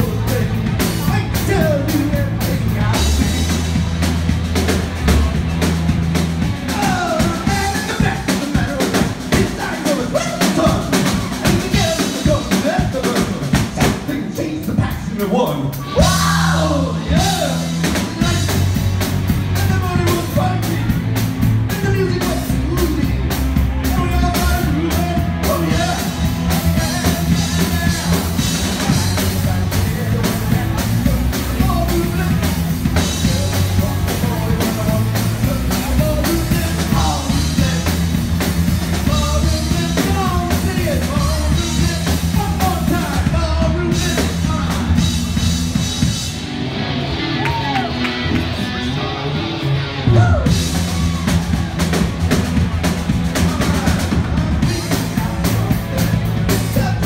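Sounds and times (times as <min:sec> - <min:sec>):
drum kit: 0:00.0 - 0:57.0
person singing lead vocals: 0:06.6 - 0:14.4, 0:15.4 - 0:18.8, 0:19.4 - 0:45.4, 0:53.3 - 0:57.0
electric guitars: 0:15.7 - 0:57.0.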